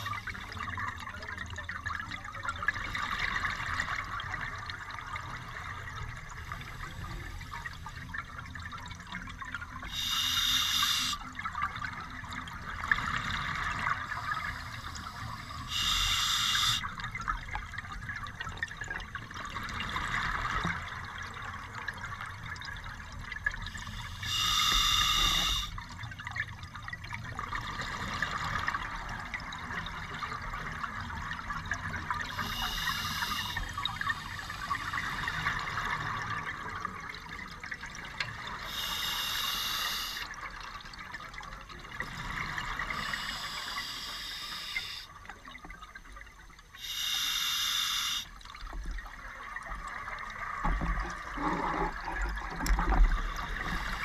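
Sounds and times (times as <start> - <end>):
underwater bubbling: 0.0 - 54.0
regulator breathing hisses: 9.9 - 11.2, 14.2 - 16.8, 23.8 - 25.8, 32.3 - 35.6, 38.6 - 40.3, 42.8 - 45.1, 46.8 - 48.3, 53.4 - 54.0.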